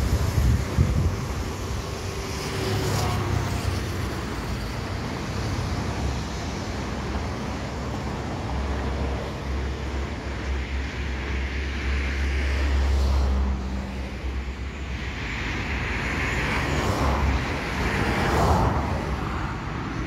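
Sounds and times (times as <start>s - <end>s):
wind buffeting microphone: 0.0s - 2.6s
passing cars: 0.0s - 20.0s.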